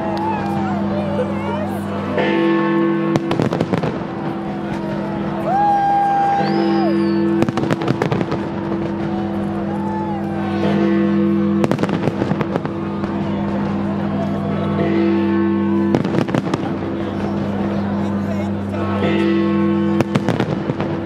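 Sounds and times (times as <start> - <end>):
crowd voices: 0.0 - 21.0
fireworks bangs: 3.0 - 14.7, 15.8 - 17.9, 19.9 - 21.0.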